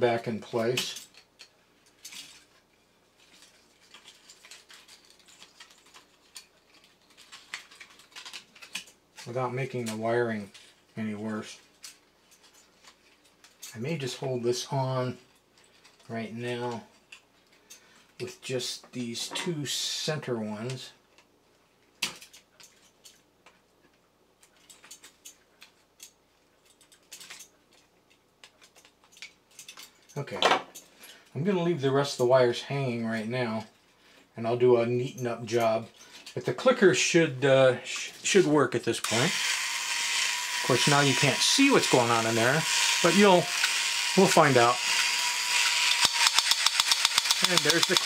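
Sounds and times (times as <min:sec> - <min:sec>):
light clicks of small parts: 0:00.5 - 0:11.0, 0:20.6 - 0:31.4.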